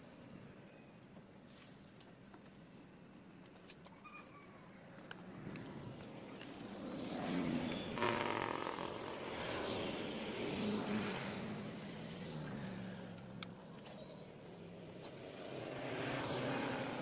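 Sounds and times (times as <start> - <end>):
motor vehicle passing by: 5.4 - 17.0.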